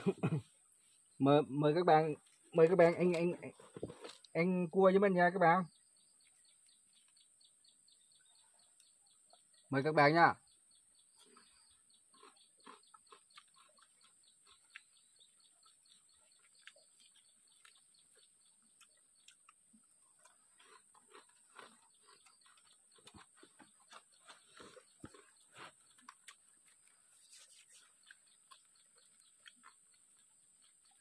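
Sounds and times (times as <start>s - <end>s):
chewing: 11.2s - 31.0s.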